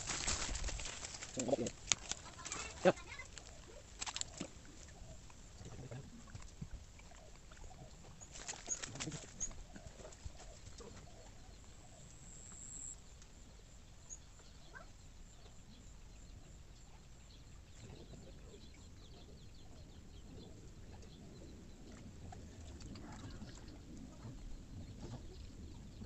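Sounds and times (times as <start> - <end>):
faint bird chirps: 13.9 - 21.7.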